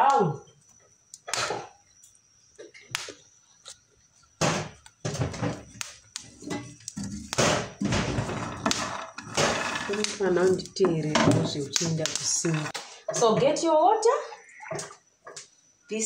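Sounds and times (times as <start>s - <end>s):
kernels rattling in a frying pan: 6.5s - 12.8s.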